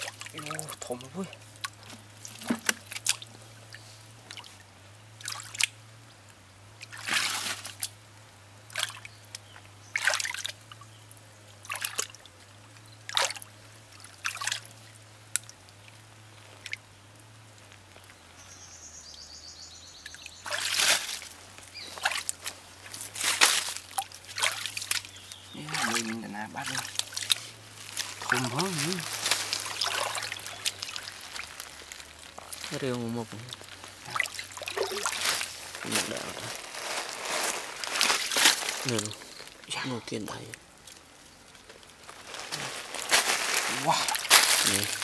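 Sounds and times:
hands splashing in muddy water: 20.4s - 39.2s, 42.4s - 45.0s.

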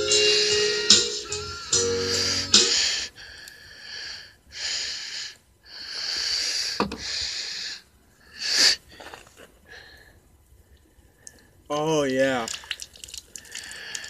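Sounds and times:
heavy breathing: 1.7s - 11.6s, 13.4s - 14.0s.

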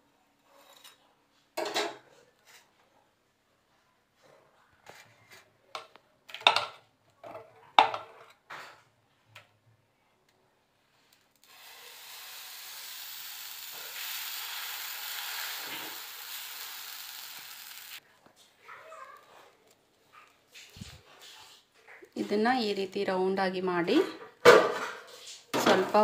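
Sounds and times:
batter sizzling on hot griddle: 11.4s - 18.0s.

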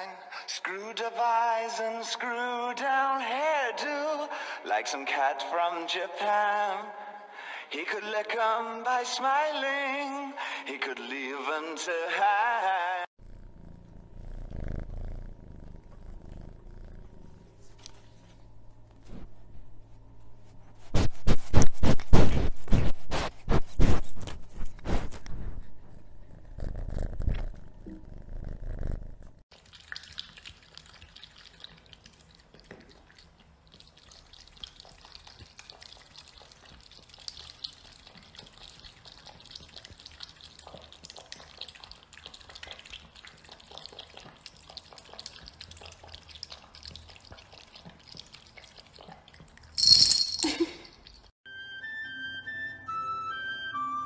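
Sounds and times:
cat lapping water: 29.5s - 49.8s.

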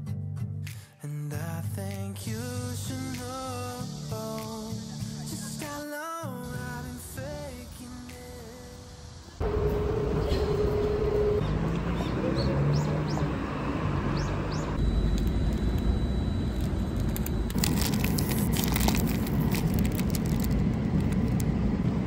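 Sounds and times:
street noise: 2.7s - 22.0s
steady hum: 8.9s - 11.7s, 13.9s - 22.0s
held tone: 9.4s - 11.5s, 14.4s - 18.6s
sharp crackles: 15.1s - 21.5s.

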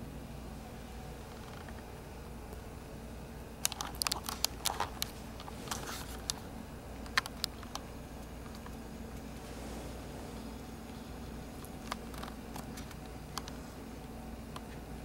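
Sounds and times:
puppies play-biting clicks: 3.6s - 5.5s.

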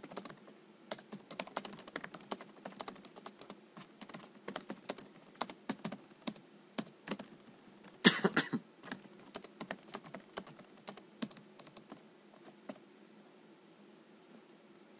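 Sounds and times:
typing on computer keyboard: 0.0s - 8.0s, 8.8s - 12.8s.

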